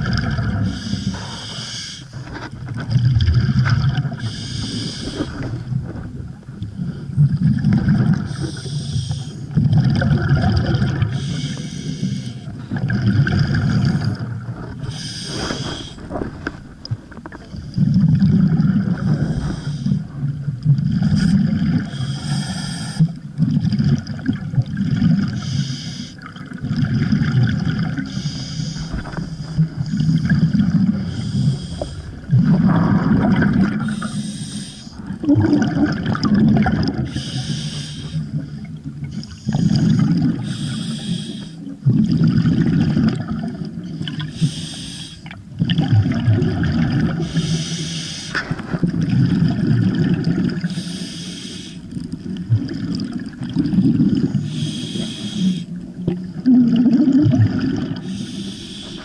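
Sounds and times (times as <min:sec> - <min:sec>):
exhaust bubbles rumbling underwater: 0:00.0 - 0:59.0
regulator inhale hiss: 0:00.7 - 0:02.2, 0:04.2 - 0:05.5, 0:08.3 - 0:09.5, 0:11.1 - 0:12.5, 0:14.9 - 0:16.1, 0:19.2 - 0:20.1, 0:21.9 - 0:23.1, 0:25.4 - 0:26.2, 0:28.1 - 0:29.8, 0:30.9 - 0:32.2, 0:33.8 - 0:35.0, 0:37.1 - 0:38.3, 0:40.4 - 0:41.7, 0:43.9 - 0:45.3, 0:47.2 - 0:48.5, 0:50.7 - 0:52.0, 0:54.4 - 0:55.8, 0:58.0 - 0:59.0.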